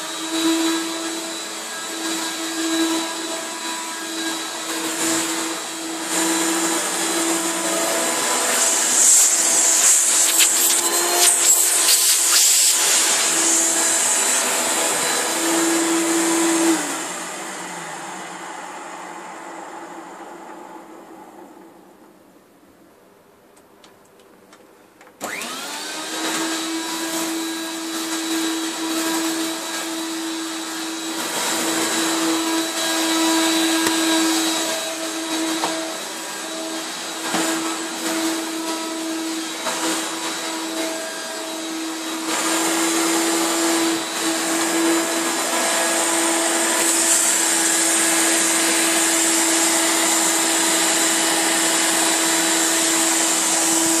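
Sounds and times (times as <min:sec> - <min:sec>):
vacuum cleaner running: 0:00.0 - 0:22.2, 0:25.2 - 0:54.0.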